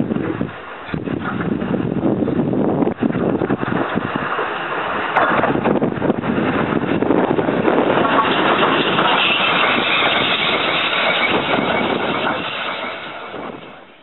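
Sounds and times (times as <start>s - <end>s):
steam locomotive running past: 6.8s - 14.0s.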